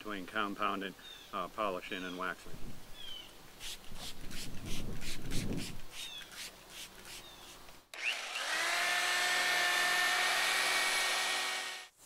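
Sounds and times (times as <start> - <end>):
electric buffer-polisher motor whine: 8.0 - 11.9.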